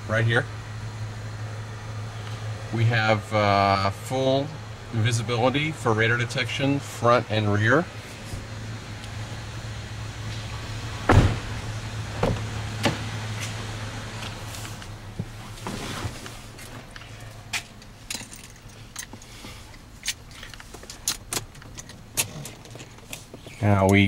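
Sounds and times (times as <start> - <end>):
low steady hum: 0.0 - 24.0
knock in car: 12.2 - 13.0
keys jangling: 17.6 - 19.3.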